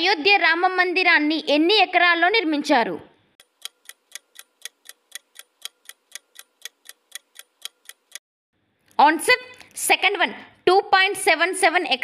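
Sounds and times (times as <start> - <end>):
countdown timer ticking: 3.4 - 8.2.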